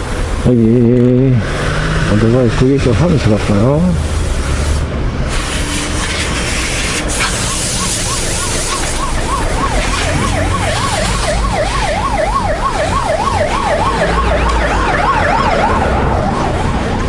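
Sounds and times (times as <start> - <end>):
low rumble of ride noise: 0.0 - 17.0
siren yelping: 7.2 - 17.0.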